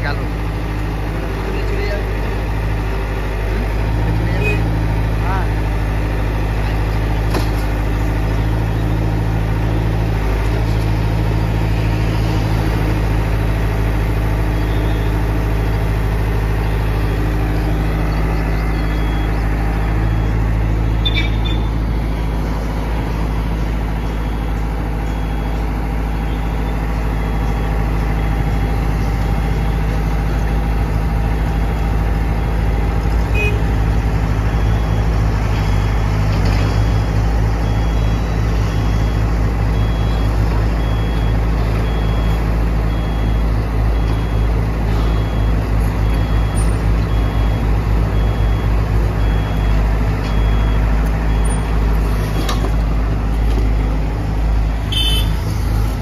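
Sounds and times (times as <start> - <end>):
excavator diesel engine running: 0.0 - 56.0
faint high beep: 18.6 - 19.4, 20.0 - 22.3.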